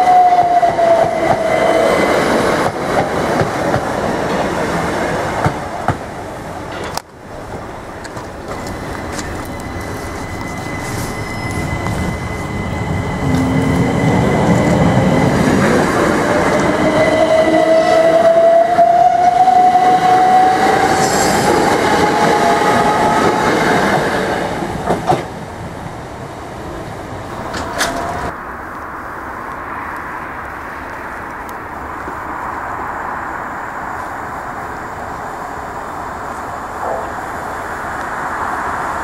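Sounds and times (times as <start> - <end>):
train wheels rumbling on rails: 0.0 - 28.4
distant train rumble: 0.0 - 39.0.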